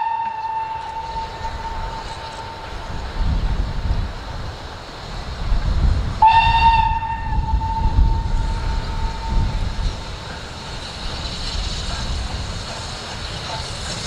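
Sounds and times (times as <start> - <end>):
steam locomotive whistle: 0.0 - 2.8, 6.2 - 9.7.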